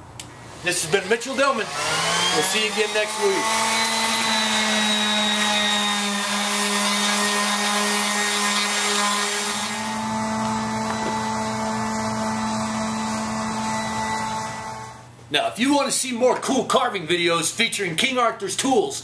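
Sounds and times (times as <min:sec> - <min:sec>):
orbital sander on wood: 0:00.5 - 0:15.0.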